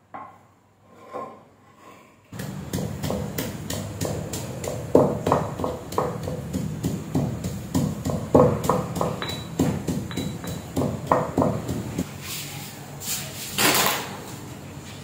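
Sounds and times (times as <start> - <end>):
stone pestle pounding in mortar: 2.4 - 12.1.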